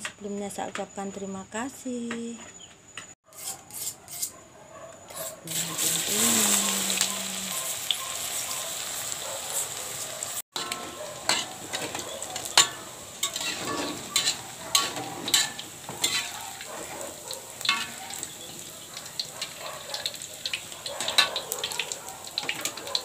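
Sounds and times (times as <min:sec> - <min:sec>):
food sizzling in hot oil: 0:05.2 - 0:23.0
metal skimmer clinking in wok: 0:10.6 - 0:21.8.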